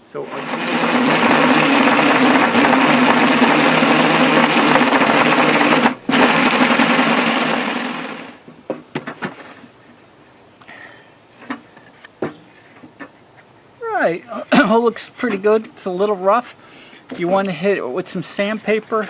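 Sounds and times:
drill boring through wood: 0.0 - 8.4.

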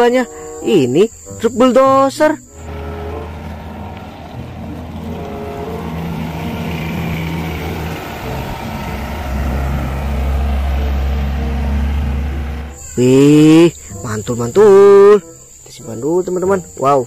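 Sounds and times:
wheel loader diesel engine: 2.5 - 13.2.

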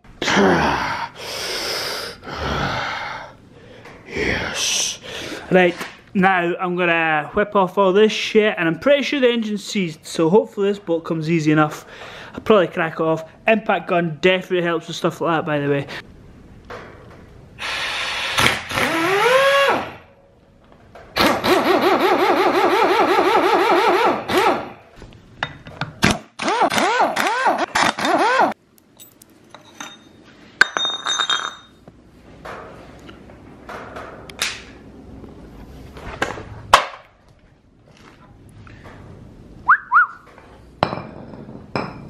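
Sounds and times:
air impact wrench hammering: 21.2 - 24.8
ringing metal clink: 29.0 - 31.8.

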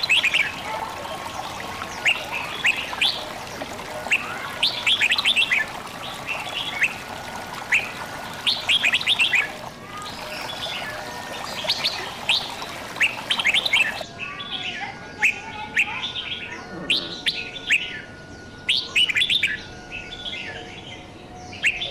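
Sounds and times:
trickle of running water: 0.0 - 14.0
small birds chirping: 0.0 - 18.1.

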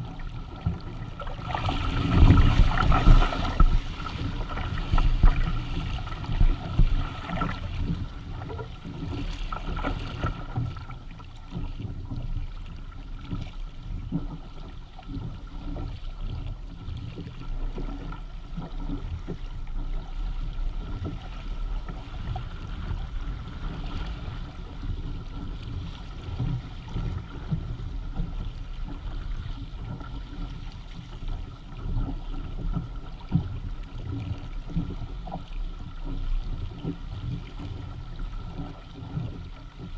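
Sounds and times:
water rushing along a hull: 0.0 - 39.9
wind buffeting microphone: 0.8 - 9.0.

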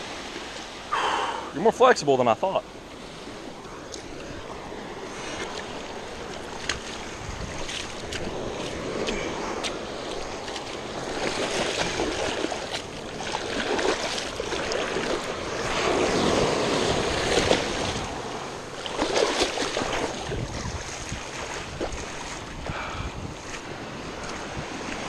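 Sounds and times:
small waves breaking: 0.0 - 25.0
water splashing and churning: 0.0 - 25.0
wind on microphone: 3.0 - 25.0.

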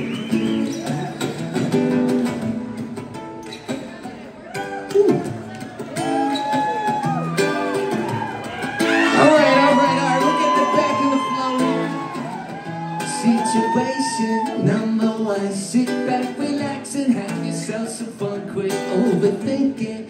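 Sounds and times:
acoustic guitar strummed: 0.0 - 20.0
person singing: 9.0 - 12.3, 13.0 - 20.0.

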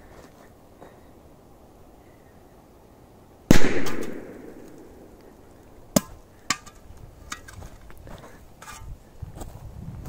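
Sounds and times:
footsteps on dry ground: 6.4 - 10.0.

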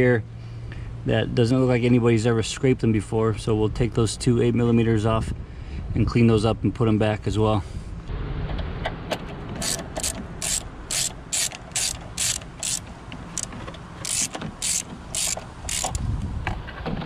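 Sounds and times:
ratchet wrench pawl clicks: 9.6 - 16.1.

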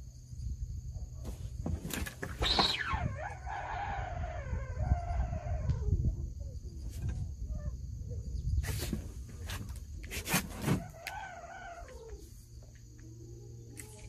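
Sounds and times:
long animal cry sliding down: 2.4 - 6.0.

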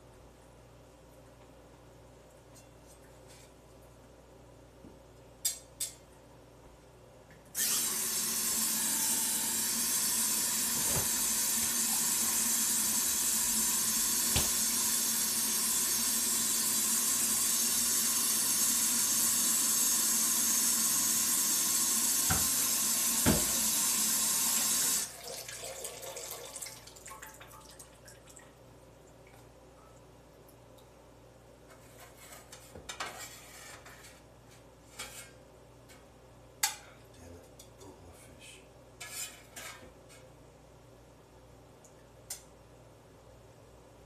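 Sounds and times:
kitchen tap running: 7.6 - 28.4
knocks in sink: 23.2 - 23.6.

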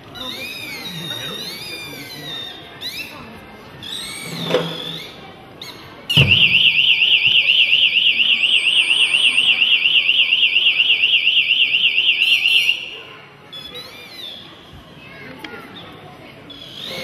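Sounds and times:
sharp knock: 6.1 - 6.7.

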